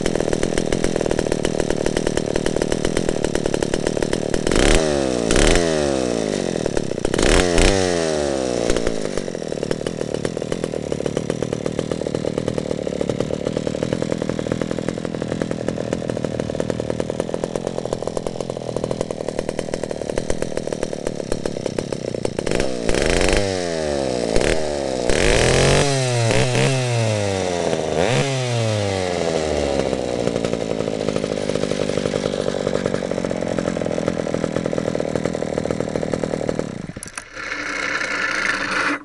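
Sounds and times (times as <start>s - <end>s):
chainsaw idling and revving: 0.0s - 39.0s.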